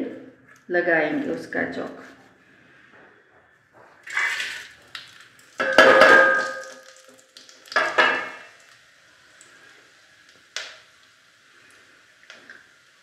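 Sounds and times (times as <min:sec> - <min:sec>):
spices sizzling in ghee: 0:04.1 - 0:13.0
metal plate knocking on pot: 0:05.6 - 0:06.8, 0:07.8 - 0:08.4.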